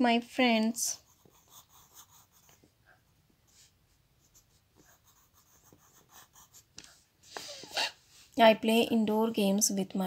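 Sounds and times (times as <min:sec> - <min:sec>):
pencil scratching on paper: 0:00.9 - 0:08.4.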